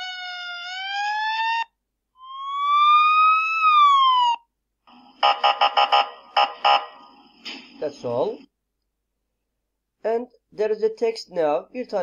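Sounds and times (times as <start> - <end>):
synthesized siren wail: 0.0 - 7.3.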